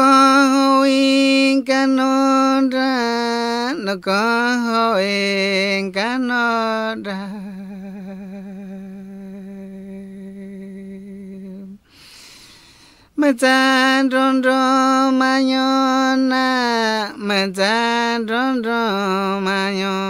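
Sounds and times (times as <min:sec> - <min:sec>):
man singing a chant: 0:00.0 - 0:11.8, 0:13.2 - 0:20.0
breath noise: 0:11.8 - 0:13.2.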